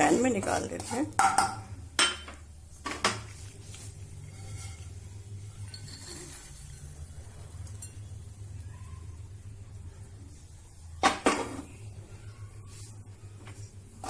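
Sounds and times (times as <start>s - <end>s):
spatula scraping: 0.0s - 1.2s, 3.3s - 8.0s
steady low hum: 0.0s - 14.0s
metal spatula clinking: 4.3s - 7.0s, 7.6s - 8.1s.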